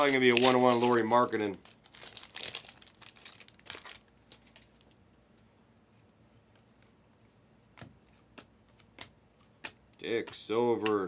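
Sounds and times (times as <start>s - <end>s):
foil wrapper crinkling and tearing: 0.0s - 4.8s
cards clicking: 7.8s - 11.0s.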